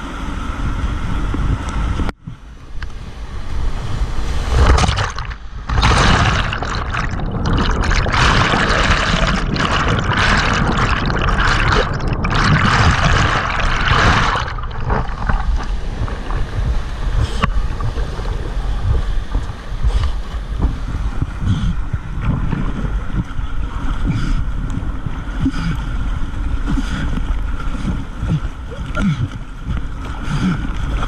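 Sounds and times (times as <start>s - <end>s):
water splashes: 3.7s - 31.0s.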